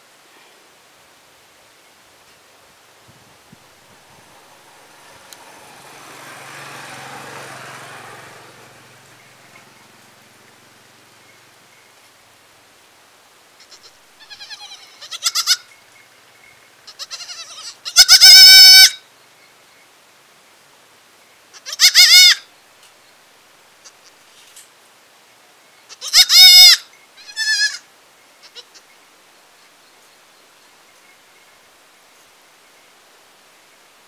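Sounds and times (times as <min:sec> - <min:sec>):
goat kid bleating: 0:13.6 - 0:15.7, 0:16.8 - 0:19.0, 0:21.5 - 0:22.4, 0:25.9 - 0:28.9.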